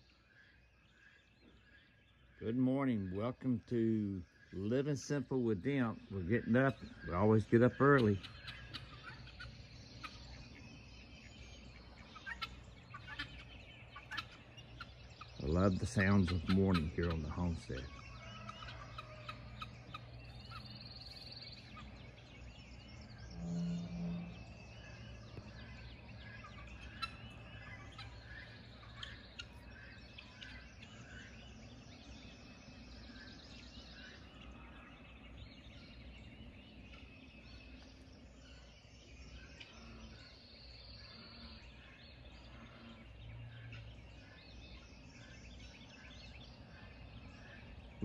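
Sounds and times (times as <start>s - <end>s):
birds chirping and warbling: 0.0s - 48.0s
faint low hum: 0.0s - 48.0s
loud low bird call: 22.9s - 31.5s.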